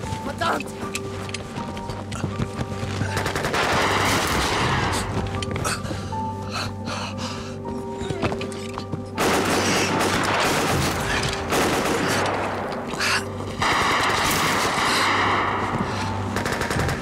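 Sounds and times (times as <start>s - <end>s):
submachine gun fire: 9.2s - 12.4s.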